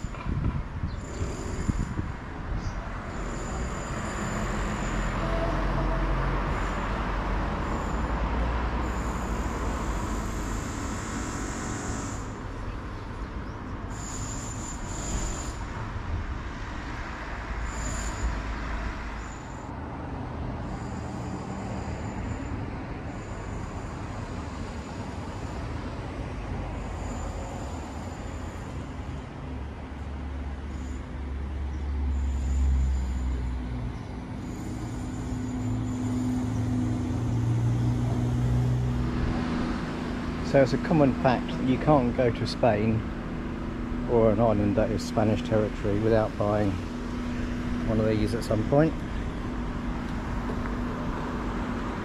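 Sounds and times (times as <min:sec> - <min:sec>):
wind rumble on the microphone: 0:00.0 - 0:03.1
road traffic: 0:00.0 - 0:52.0.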